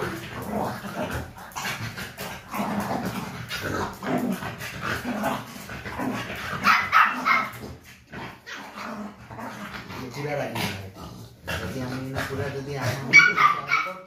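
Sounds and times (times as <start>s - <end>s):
dog barking: 6.6s - 7.6s, 13.1s - 14.0s.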